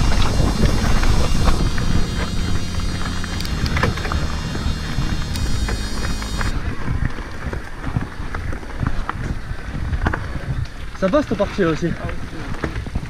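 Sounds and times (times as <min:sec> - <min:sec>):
electric motor whine: 0:00.0 - 0:07.1
bike clattering: 0:00.0 - 0:10.3
wind buffeting microphone: 0:00.0 - 0:13.0.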